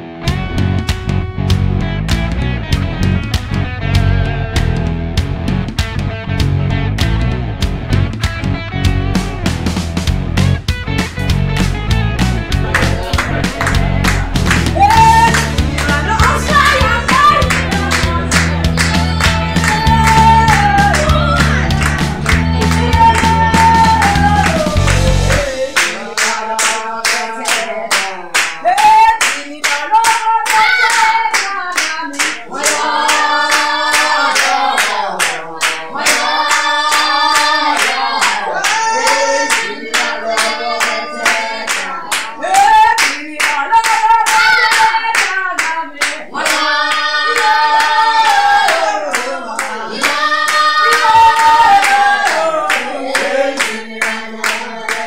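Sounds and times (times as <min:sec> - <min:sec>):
rhythmic hand clapping: 0:00.2 - 0:55.0
voices singing: 0:12.1 - 0:55.0.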